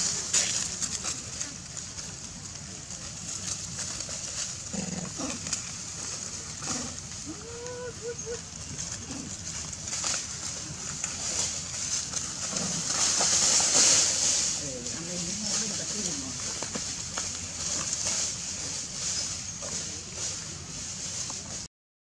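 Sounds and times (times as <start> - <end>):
rustling in dry leaves: 0.0 - 21.7
steady high-pitched hiss: 0.0 - 21.7
short monkey calls: 7.2 - 8.6.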